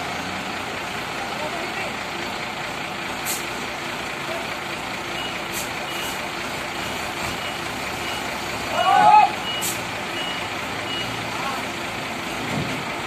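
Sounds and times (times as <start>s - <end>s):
forklift engine running under load: 0.0s - 13.0s
reversing alarm beeps: 6.8s - 8.3s, 9.4s - 11.2s.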